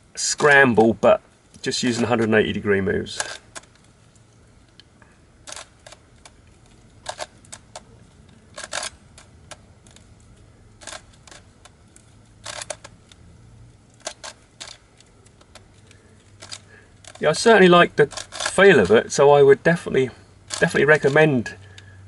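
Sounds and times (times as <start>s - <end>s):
plastic puzzle pieces clicking: 5.5s - 11.8s.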